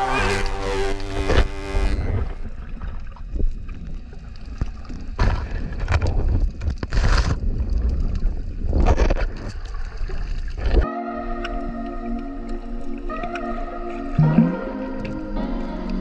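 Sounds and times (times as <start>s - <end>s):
underwater water rumble: 0.0s - 10.8s.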